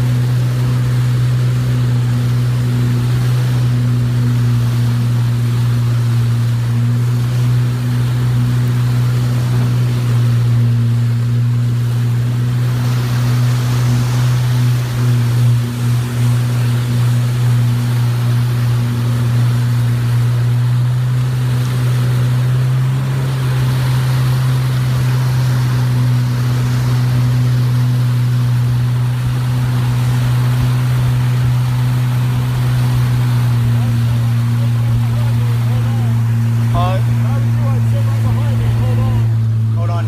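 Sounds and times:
speedboat engine droning: 0.0s - 40.0s
water rushing past hull: 0.0s - 40.0s.

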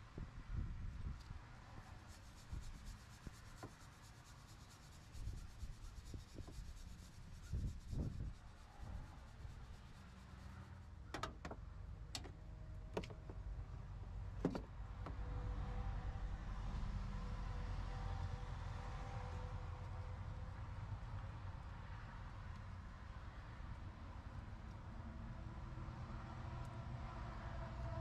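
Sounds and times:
wire brush scrubbing metal: 1.8s - 10.8s.

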